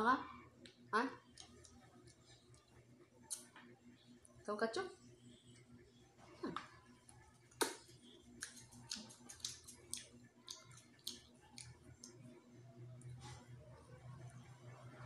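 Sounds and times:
person chewing food: 0:00.6 - 0:03.6, 0:07.5 - 0:13.2.

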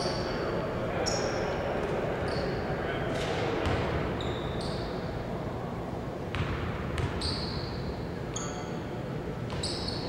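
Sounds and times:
sneaker squeaks: 0:01.0 - 0:01.4, 0:02.2 - 0:02.6, 0:03.6 - 0:05.1, 0:06.4 - 0:08.8, 0:09.5 - 0:10.0.

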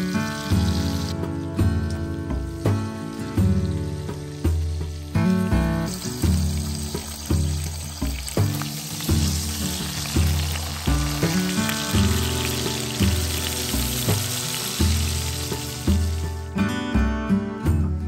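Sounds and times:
bacon sizzling in a skillet: 0:00.0 - 0:16.5
background music with low notes: 0:00.0 - 0:18.0.

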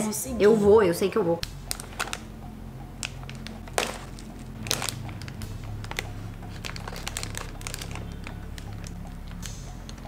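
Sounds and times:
snack bag crinkling: 0:01.6 - 0:02.3, 0:03.0 - 0:10.0.

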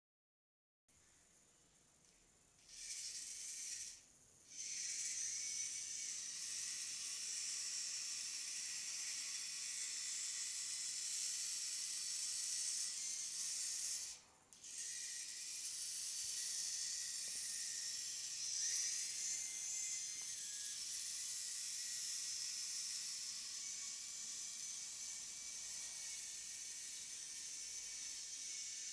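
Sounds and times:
robot servos whirring: 0:02.6 - 0:28.9.

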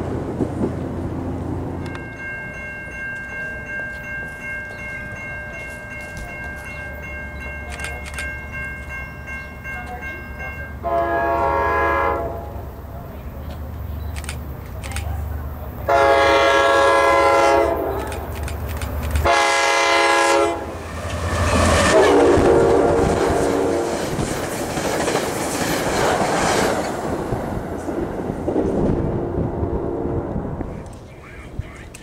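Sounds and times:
train rumbling: 0:00.0 - 0:32.0
train horn blasts: 0:10.8 - 0:12.6, 0:15.9 - 0:18.1, 0:19.2 - 0:20.8, 0:21.8 - 0:24.1, 0:29.1 - 0:30.5
train wheels clattering: 0:21.0 - 0:28.9.

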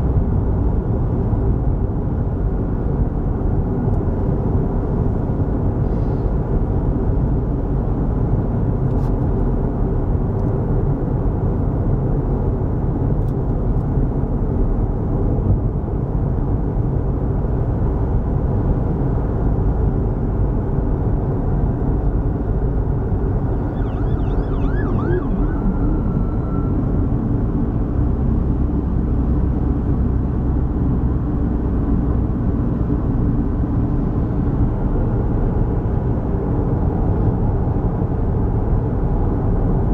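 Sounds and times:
tyres rumbling on highway: 0:00.0 - 0:39.9
faint wavering tone: 0:23.5 - 0:27.1.

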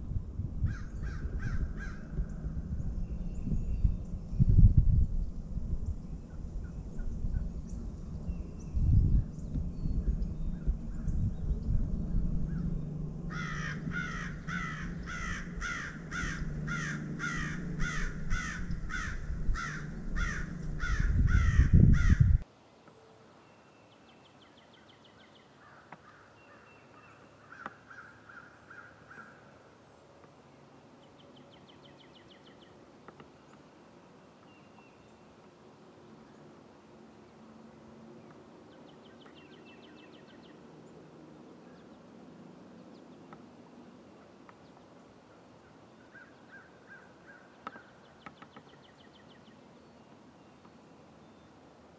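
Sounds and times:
low microphone rumble: 0:00.0 - 0:22.4
crow cawing: 0:00.7 - 0:02.2, 0:13.3 - 0:22.4, 0:25.6 - 0:26.3, 0:27.4 - 0:29.5, 0:46.1 - 0:47.5
small birds chirping: 0:00.8 - 0:22.4, 0:38.2 - 0:40.7, 0:45.9 - 0:51.6.

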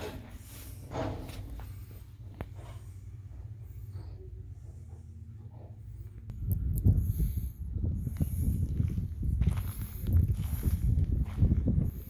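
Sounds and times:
low rumble: 0:00.3 - 0:12.0.

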